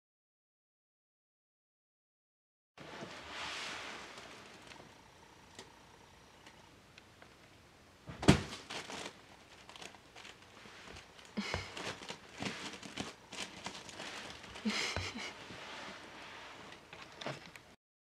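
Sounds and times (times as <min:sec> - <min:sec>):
sleeve rustling: 0:08.6 - 0:16.7.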